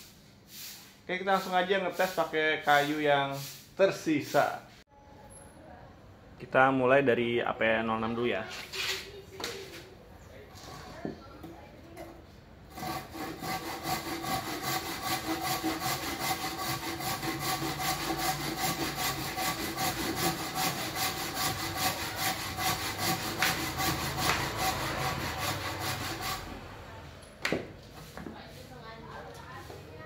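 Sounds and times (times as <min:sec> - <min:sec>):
handsaw cutting wood: 0:12.7 - 0:26.8.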